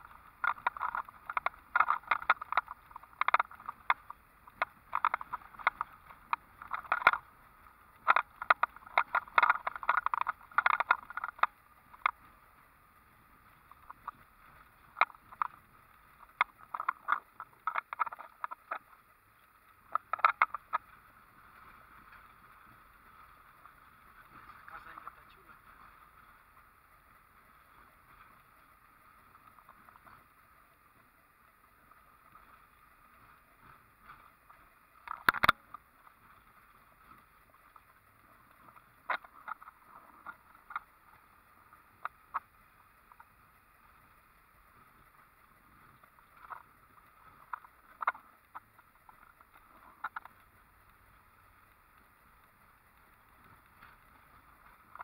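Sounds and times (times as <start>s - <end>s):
scattered clicks: 0.0s - 12.4s, 13.4s - 26.6s, 31.7s - 55.0s
faint road noise inside vehicle: 17.3s - 55.0s.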